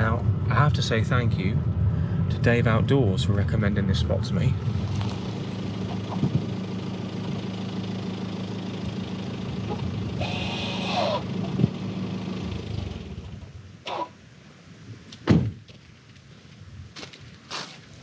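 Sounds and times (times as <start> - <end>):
car engine idling: 0.0 - 14.6.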